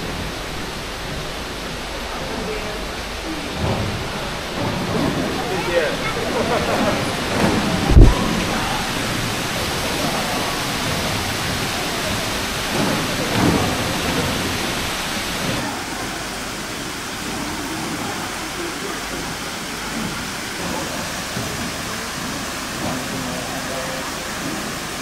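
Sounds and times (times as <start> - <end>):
rushing water: 0.0 - 25.0
low thump: 7.3 - 8.4.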